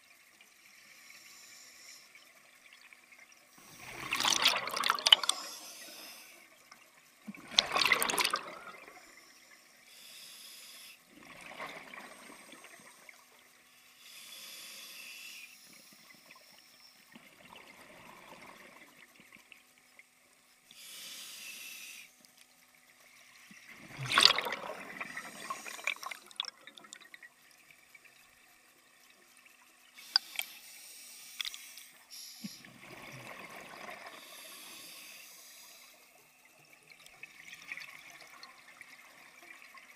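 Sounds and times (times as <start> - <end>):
regulator inhalation hiss: 0.8 - 2.1, 5.4 - 6.5, 9.0 - 11.0, 13.8 - 17.0, 20.7 - 22.1, 30.0 - 32.7, 34.2 - 36.1
exhaled air bubbling: 3.6 - 6.0, 7.2 - 9.2, 23.5 - 27.4.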